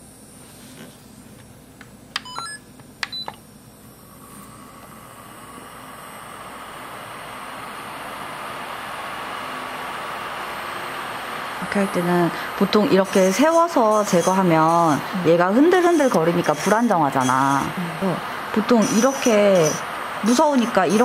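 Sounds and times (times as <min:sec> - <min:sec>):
control unit beeps: 0:02.2 - 0:03.4
nail drill motor running: 0:04.8 - 0:21.0.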